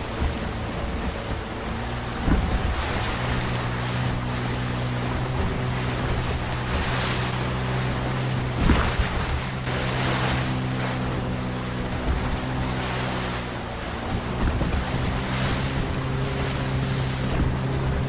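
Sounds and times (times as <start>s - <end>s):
breaking waves rushing: 0.0s - 18.0s
outboard motor running: 0.0s - 18.0s
waves thumping hull: 0.0s - 18.0s
wind on microphone: 0.0s - 18.0s.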